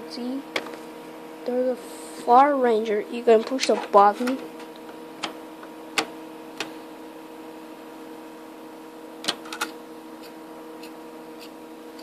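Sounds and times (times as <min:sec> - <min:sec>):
computer humming: 0:00.0 - 0:12.0
dvd drive clicks: 0:04.2 - 0:06.7, 0:09.2 - 0:09.8.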